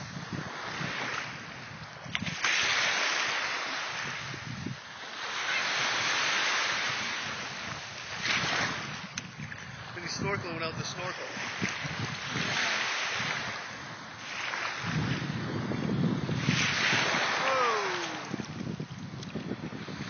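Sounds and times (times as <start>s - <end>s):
small waves breaking: 0.0s - 20.0s.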